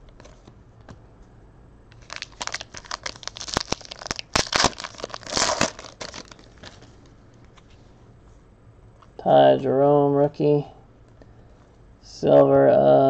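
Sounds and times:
crinkly packaging crumpled: 0:01.9 - 0:07.0.

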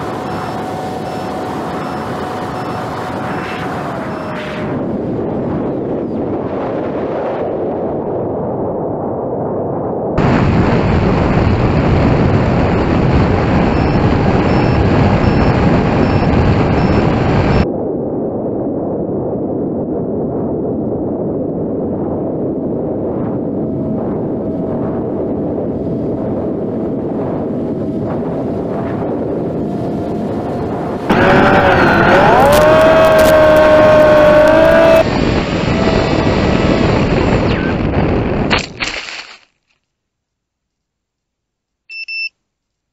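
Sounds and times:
electric motor and propeller whining: 0:00.0 - 0:05.8, 0:23.3 - 0:37.9
wind rushing: 0:00.0 - 0:38.7.

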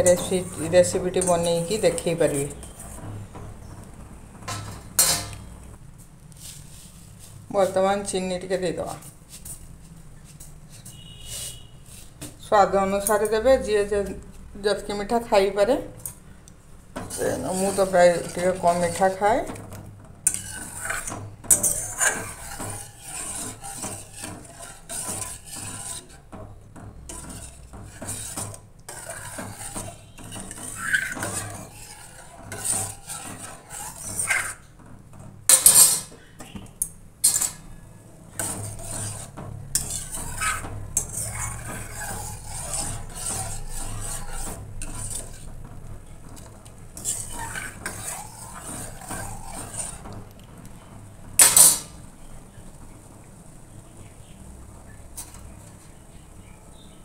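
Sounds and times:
ladle scraping metal saucepan: 0:00.0 - 0:03.2, 0:04.5 - 0:05.6, 0:10.3 - 0:15.6, 0:17.0 - 0:36.6, 0:37.2 - 0:50.3, 0:51.4 - 0:52.0.

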